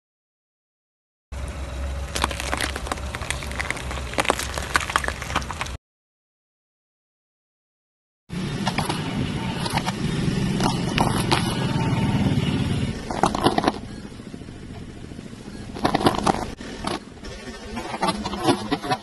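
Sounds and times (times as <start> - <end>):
car engine running low: 1.3 - 5.8, 8.3 - 19.0
tyre crushing cucumbers: 2.1 - 5.8, 15.8 - 17.0.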